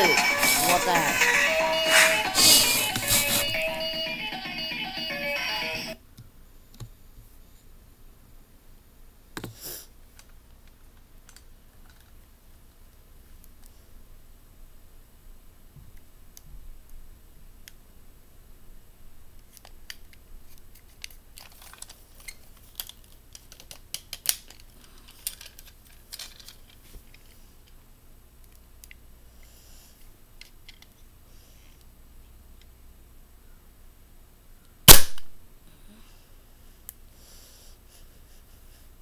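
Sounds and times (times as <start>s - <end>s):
plastic toy gun clicks and rattles: 19.4s - 27.3s, 30.4s - 31.0s.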